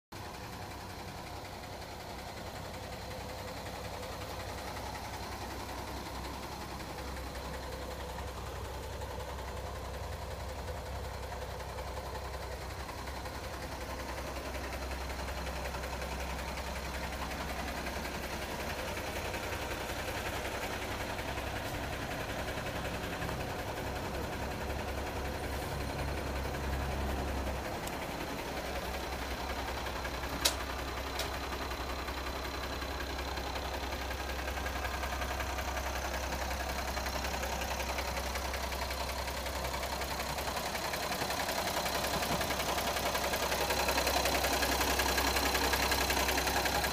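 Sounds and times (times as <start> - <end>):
truck diesel engine idling: 0.1 - 46.9.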